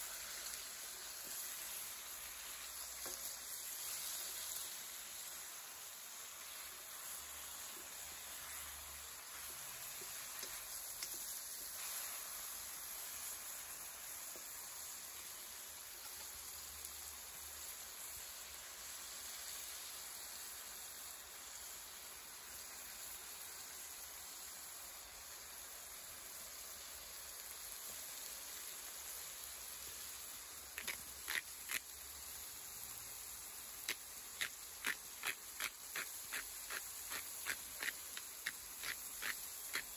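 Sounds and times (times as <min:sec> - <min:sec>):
chicken sizzling in hot oil: 0:00.0 - 0:39.9
pepper mill clicking: 0:30.8 - 0:31.9, 0:33.8 - 0:39.9.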